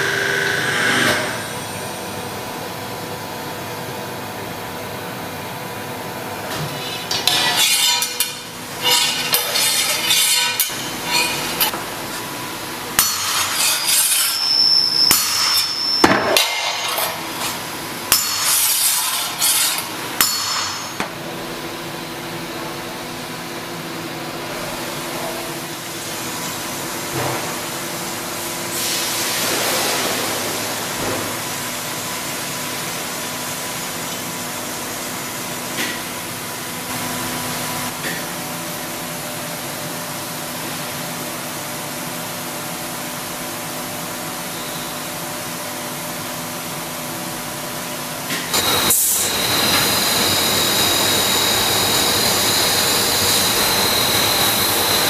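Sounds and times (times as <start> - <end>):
machine hum: 0.0 - 6.9, 48.5 - 55.0
hammer striking saw blade: 6.9 - 11.8, 13.0 - 21.1.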